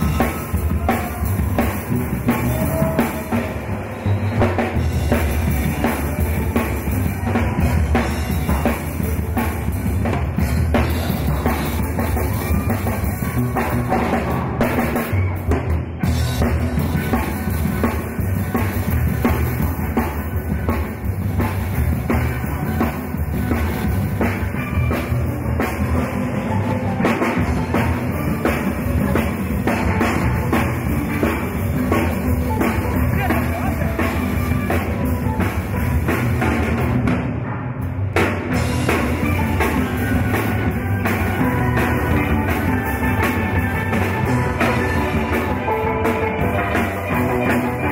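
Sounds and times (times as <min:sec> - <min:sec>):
drum kit: 0:00.0 - 0:47.9.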